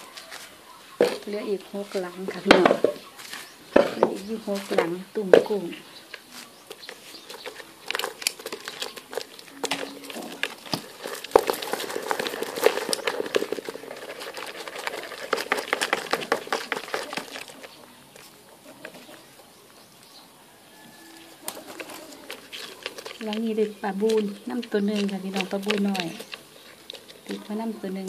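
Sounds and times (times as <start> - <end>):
shrimp clicking and splashing: 6.0 - 19.0, 21.3 - 28.0.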